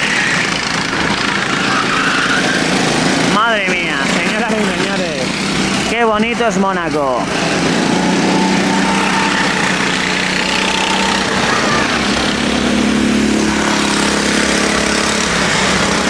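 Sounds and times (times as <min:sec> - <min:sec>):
go-kart engines racing past: 0:00.0 - 0:16.0.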